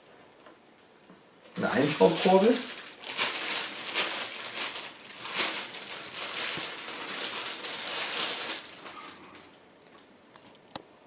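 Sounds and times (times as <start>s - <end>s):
plastic wrapping crinkling: 1.6s - 9.6s.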